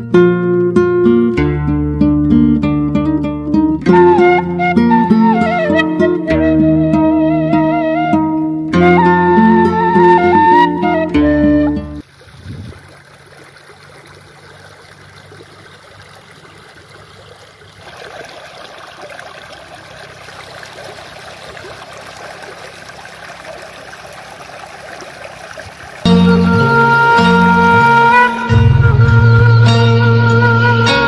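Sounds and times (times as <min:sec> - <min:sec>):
instrumental music: 0:00.0 - 0:12.0, 0:26.1 - 0:31.0
stream rushing over stones: 0:12.0 - 0:26.1.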